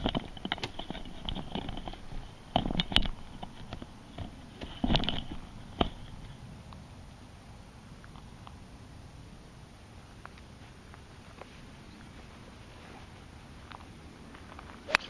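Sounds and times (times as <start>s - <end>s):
golf club clicks and knocks: 0.0s - 6.1s.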